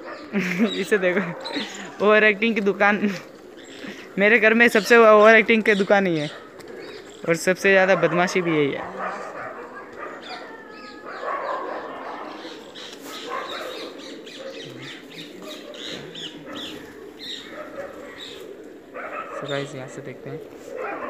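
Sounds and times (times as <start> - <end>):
birds chirping: 0.0 - 21.0
bird squawk: 3.0 - 19.8.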